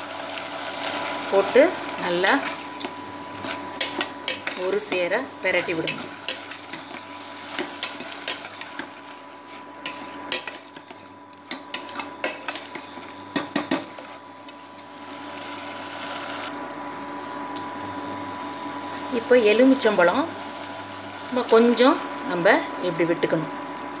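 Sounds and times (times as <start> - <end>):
soft sizzle: 0.0 - 24.0
metal skimmer scraping pot: 2.0 - 14.8.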